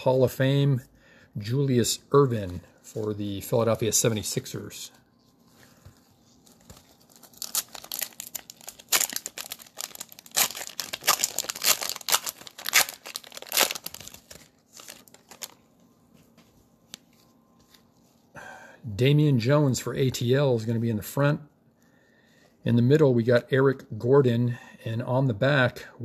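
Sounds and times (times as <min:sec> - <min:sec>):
cellophane wrapper crinkling: 0:06.0 - 0:15.8.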